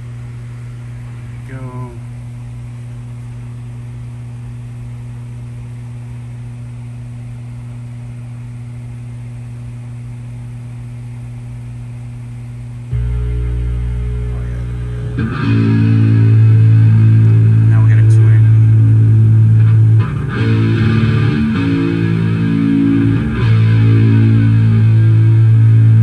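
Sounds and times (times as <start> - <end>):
amplifier hum: 0.0 - 26.0
electric guitar chord ringing: 12.9 - 26.0.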